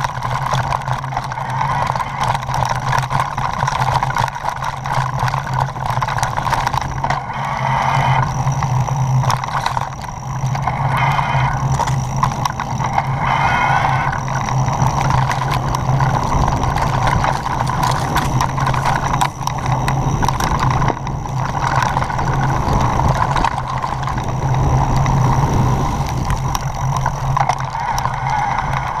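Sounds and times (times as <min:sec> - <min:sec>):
bike tyres rumbling on stones: 0:00.0 - 0:29.0
bike parts clattering: 0:14.0 - 0:25.2.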